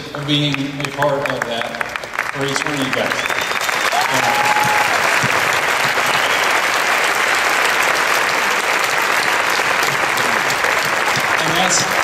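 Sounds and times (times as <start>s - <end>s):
crowd applauding: 0.1s - 12.0s.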